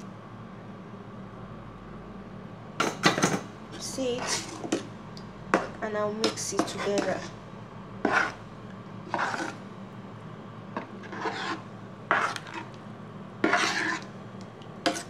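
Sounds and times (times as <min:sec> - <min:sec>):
spoon scraping metal pot: 0:04.1 - 0:04.9, 0:05.6 - 0:07.3, 0:08.0 - 0:08.4, 0:09.1 - 0:09.6, 0:10.8 - 0:12.8, 0:13.4 - 0:14.1.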